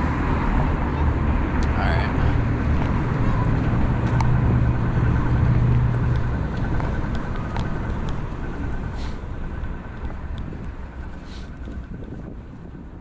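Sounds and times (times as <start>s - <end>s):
city street traffic: 0.0s - 13.0s
vehicle engine hum: 0.0s - 13.0s.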